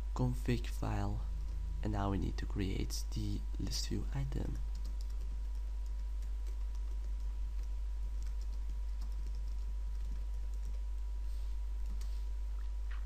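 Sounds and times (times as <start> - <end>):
low electrical hum: 0.0 - 13.0
typing on computer keyboard: 4.6 - 10.8.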